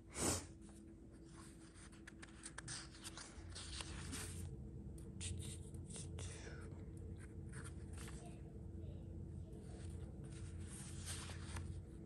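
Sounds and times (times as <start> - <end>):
paper rustling: 1.2 - 4.5, 7.2 - 8.4, 9.7 - 12.0.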